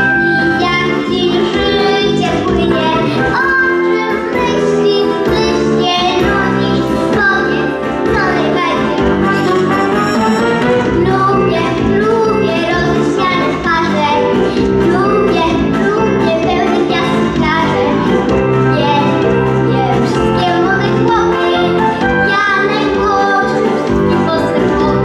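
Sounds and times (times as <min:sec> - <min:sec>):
boy singing into microphone: 0:00.0 - 0:10.2, 0:11.0 - 0:18.1, 0:18.7 - 0:25.0
instrumental accompaniment: 0:06.9 - 0:12.6.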